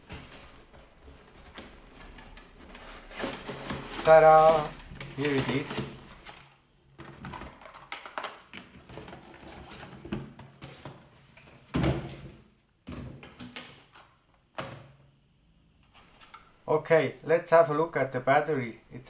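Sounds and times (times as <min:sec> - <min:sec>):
cardboard boxes scraping and rustling: 0:01.1 - 0:06.4, 0:08.9 - 0:10.8.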